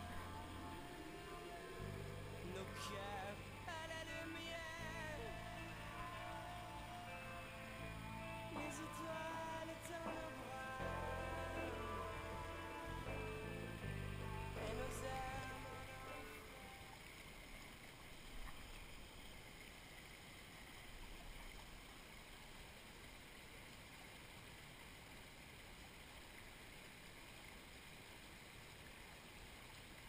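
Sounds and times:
faint rush of stream water: 0.0 - 30.0.

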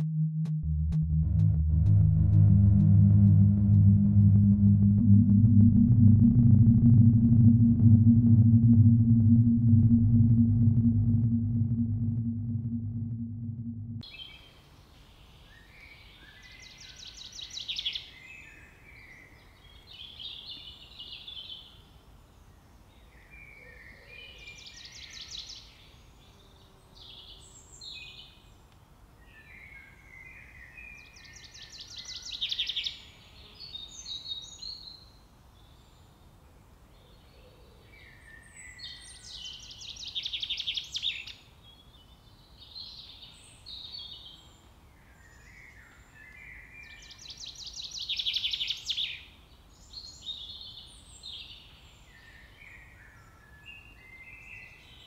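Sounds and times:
low background rumble: 0.4 - 14.0.

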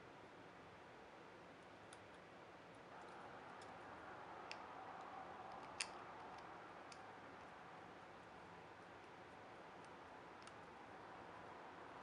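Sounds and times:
room hiss: 0.0 - 12.0.

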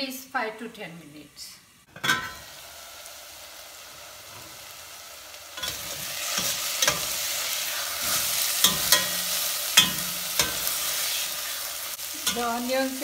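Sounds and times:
onions sizzling in oil: 0.0 - 13.0
metal spoon scraping pan: 5.6 - 12.7.

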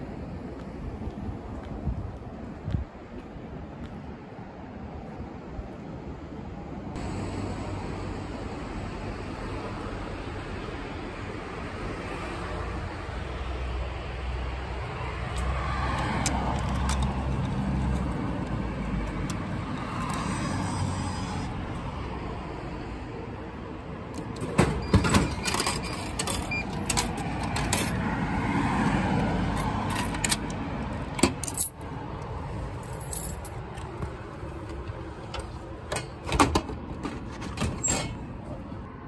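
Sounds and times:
road traffic passing: 0.0 - 39.0
vending machine dispensing: 24.4 - 27.7
coins jingling: 32.8 - 33.5.

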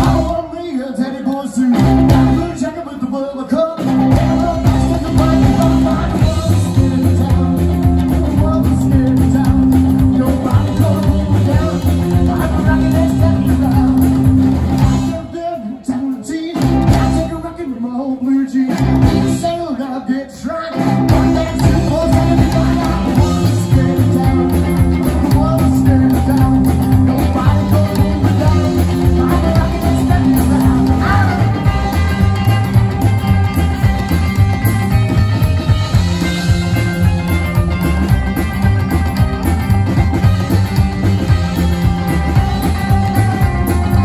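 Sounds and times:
man singing: 0.0 - 35.0
live rock and roll band: 0.0 - 44.0.

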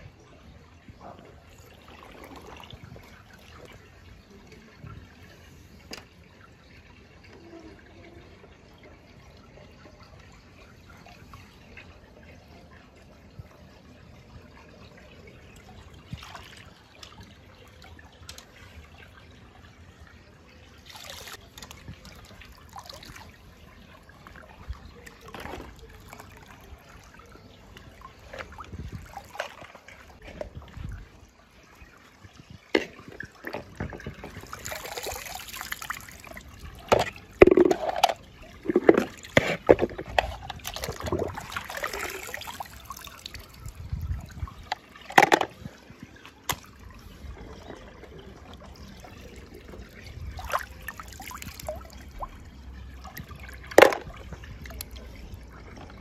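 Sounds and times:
water trickling and sloshing: 0.0 - 56.0
toy cars splashing into water: 20.8 - 23.4, 32.8 - 43.7, 44.6 - 45.7, 52.9 - 55.2.

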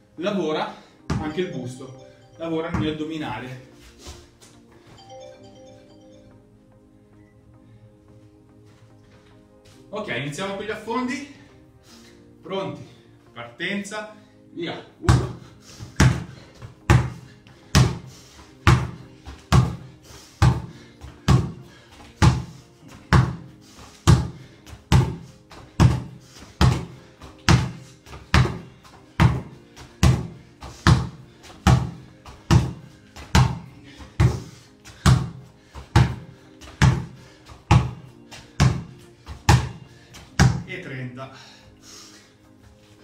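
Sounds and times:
basketball bouncing on tiled floor: 16.9 - 17.2, 18.7 - 19.8, 26.6 - 27.7, 28.3 - 28.6, 29.2 - 29.4, 39.5 - 39.7, 40.4 - 40.6
sneakers thudding on landing: 24.1 - 26.9, 29.2 - 36.2, 36.8 - 37.1, 39.5 - 39.8.

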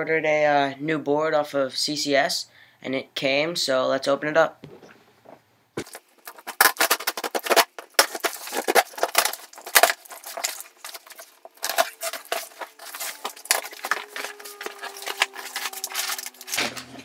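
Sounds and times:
cardboard box tearing open: 5.8 - 17.0.

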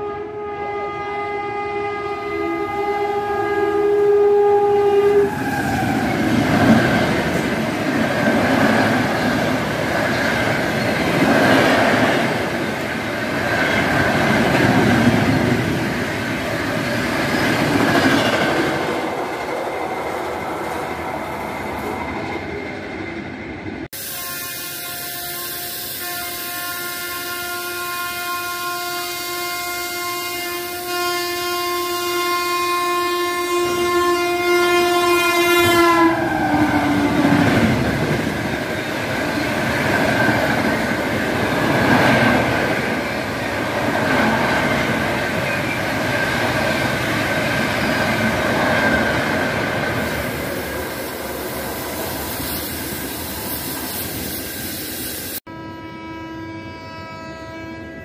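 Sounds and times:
locomotive horn blown steadily: 0.0 - 6.1, 24.0 - 37.0, 55.4 - 58.0
train horn: 0.0 - 7.4, 24.0 - 37.8, 55.4 - 58.0
rushing train noise: 0.0 - 58.0.

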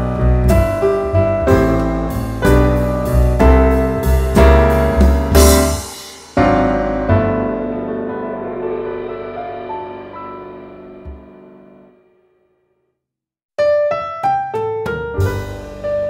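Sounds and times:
piano chords: 0.0 - 12.2, 13.6 - 16.0.

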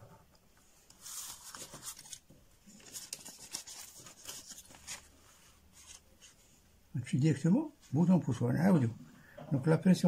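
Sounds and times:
hand rustling over paper: 0.9 - 6.5.

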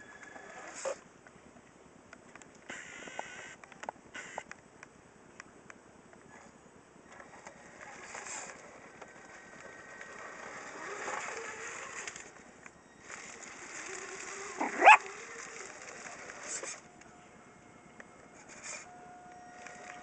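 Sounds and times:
toy car motor whining: 0.0 - 1.0, 2.7 - 3.6, 4.2 - 4.4, 7.3 - 16.9
dog barking: 14.6 - 15.0.

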